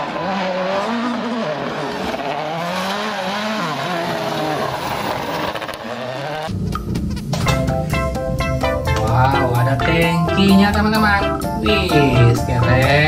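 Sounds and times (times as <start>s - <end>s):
rally car engine revving: 0.0s - 7.4s.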